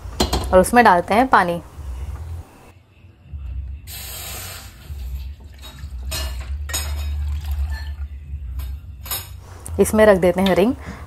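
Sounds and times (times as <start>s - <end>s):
water pouring into metal pan: 4.2s - 8.0s.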